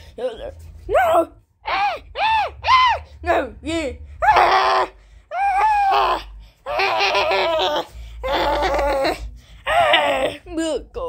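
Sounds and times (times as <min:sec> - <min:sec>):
high-pitched laughter bursts: 0:06.7 - 0:09.2.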